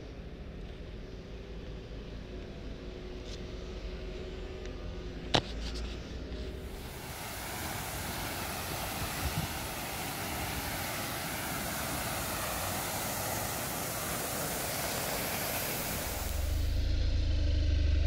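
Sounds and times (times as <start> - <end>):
fountain water splashing: 6.7 - 16.8.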